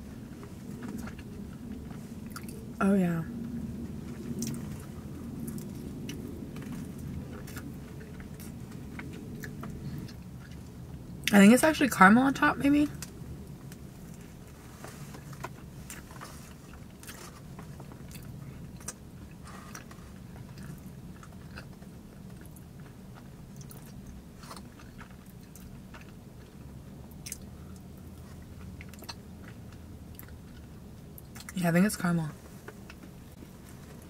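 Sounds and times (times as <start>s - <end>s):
steady low hum: 0.0s - 34.0s
chewing close-up: 0.6s - 2.8s, 3.4s - 11.3s, 15.1s - 31.6s.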